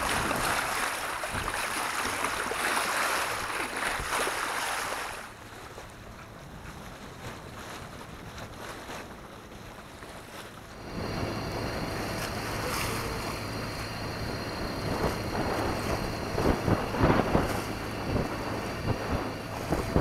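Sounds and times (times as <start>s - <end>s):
water rushing past hull: 0.0s - 20.0s
wind buffeting microphone: 5.4s - 20.0s
steady low hum: 9.8s - 20.0s.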